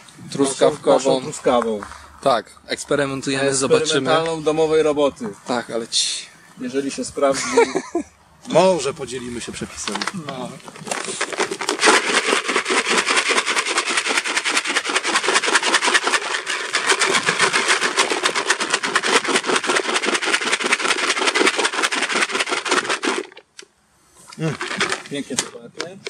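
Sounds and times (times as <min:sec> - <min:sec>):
pellets rattling in plastic bucket: 0:09.8 - 0:23.4, 0:24.4 - 0:26.0.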